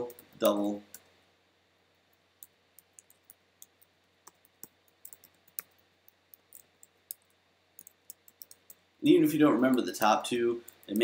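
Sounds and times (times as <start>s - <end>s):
keyboard keys clicking: 6.4s - 8.8s.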